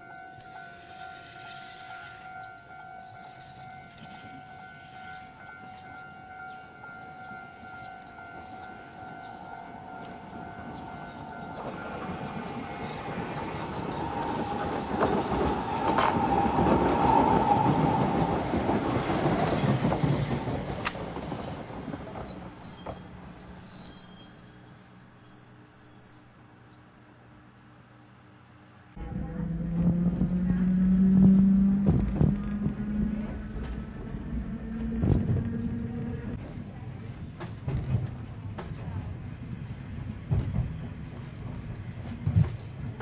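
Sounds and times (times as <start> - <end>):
railcar wheels rolling: 0.4 - 26.5, 29.0 - 43.0
steady two-note tone: 29.0 - 36.2.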